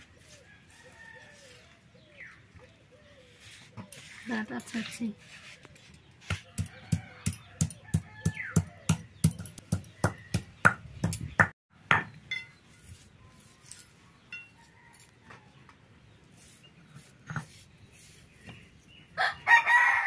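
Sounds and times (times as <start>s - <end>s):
stone pestle pounding on wood: 6.2s - 12.1s.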